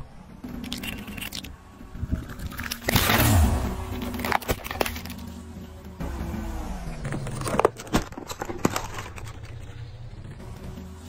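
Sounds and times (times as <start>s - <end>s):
plastic case cracking under tyre: 2.2s - 5.3s, 7.0s - 10.3s.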